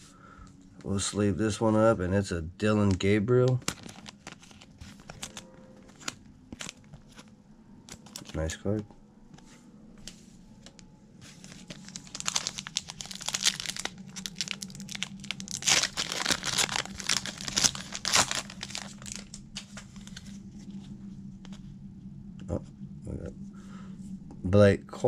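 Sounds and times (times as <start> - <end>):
foil wrapper tearing and crinkling: 3.5 - 7.2, 7.9 - 8.4, 11.4 - 20.3.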